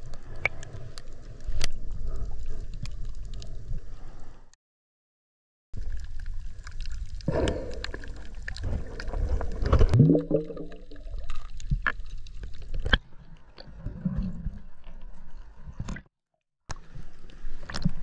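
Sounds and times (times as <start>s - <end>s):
water sloshing and gurgling: 5.8s - 16.1s.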